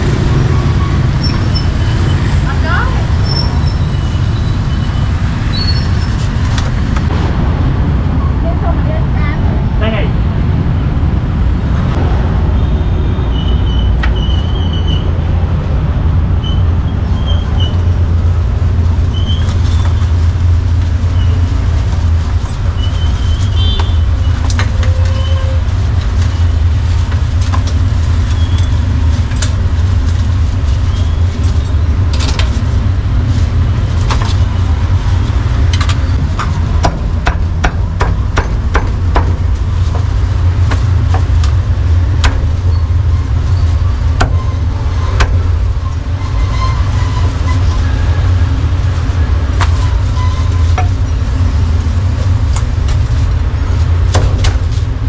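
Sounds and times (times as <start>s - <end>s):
passing motorbikes and cars: 0.0s - 24.8s
street traffic rumble: 0.0s - 55.0s.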